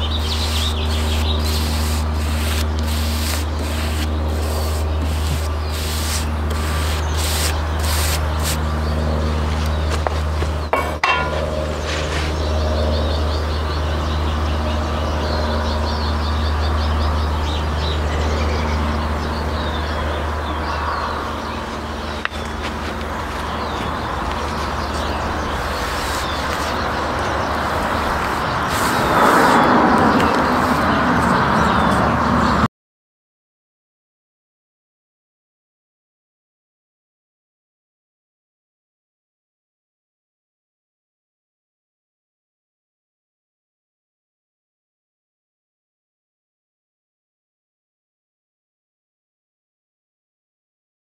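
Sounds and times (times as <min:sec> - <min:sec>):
sandpaper scratching on wood: 0:00.0 - 0:08.6, 0:25.0 - 0:31.4
steady low hum: 0:00.0 - 0:31.3
passing road traffic: 0:00.0 - 0:32.7
sharp knock and clatter: 0:10.7 - 0:11.6.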